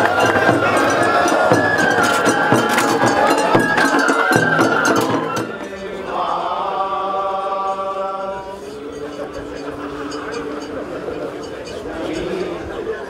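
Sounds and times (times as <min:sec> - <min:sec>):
taiko drums: 0:00.0 - 0:05.9
bamboo flute: 0:00.0 - 0:06.2
crowd noise: 0:00.0 - 0:13.0
slow chant in long notes: 0:00.0 - 0:13.0.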